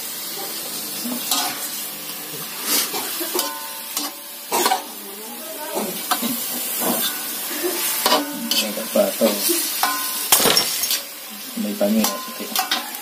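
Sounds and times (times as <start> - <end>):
meat sizzling: 0.0 - 13.0
metal spatula scraping wok: 1.1 - 1.8, 2.6 - 5.0, 5.7 - 11.1.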